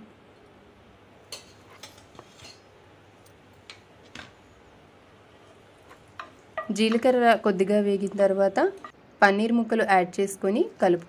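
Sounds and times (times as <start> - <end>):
faint frying hiss: 0.0 - 11.0
seeds frying with sharp pops: 3.2 - 4.4.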